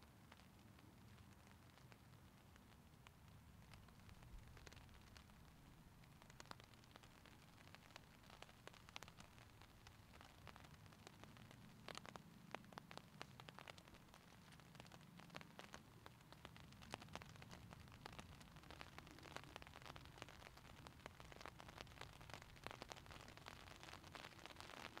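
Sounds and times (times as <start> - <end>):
raindrop taps: 6.1 - 25.0.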